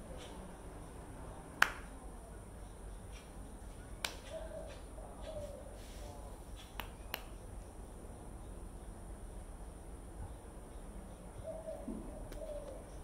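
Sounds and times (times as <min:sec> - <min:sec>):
hands slapping together: 0:01.6 - 0:01.9, 0:04.0 - 0:04.8, 0:06.6 - 0:07.4.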